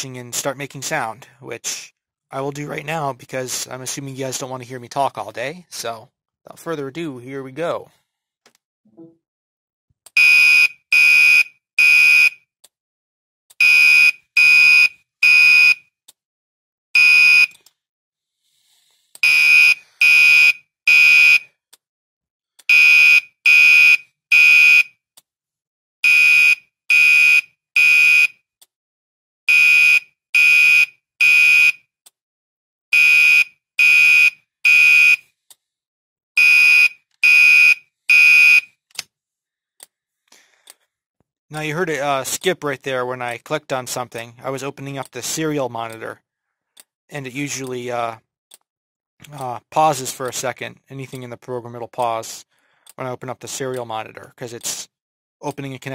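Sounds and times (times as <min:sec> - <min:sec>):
fire alarm horn blasts: 0:10.2 - 0:12.4, 0:13.6 - 0:15.8, 0:17.0 - 0:17.5, 0:19.2 - 0:21.5, 0:22.7 - 0:24.9, 0:26.0 - 0:28.4, 0:29.5 - 0:31.8, 0:32.9 - 0:35.2, 0:36.4 - 0:38.7.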